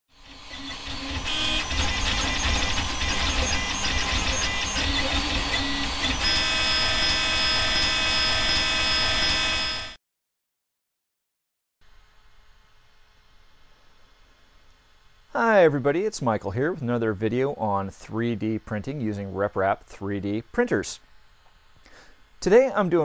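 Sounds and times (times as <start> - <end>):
stepper motors whining: 0.1 - 10.0.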